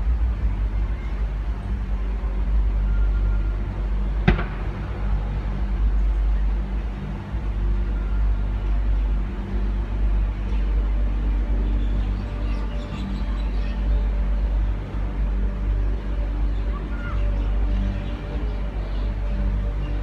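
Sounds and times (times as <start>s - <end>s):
steady low rumble: 0.0s - 20.0s
firework bang: 4.2s - 5.0s.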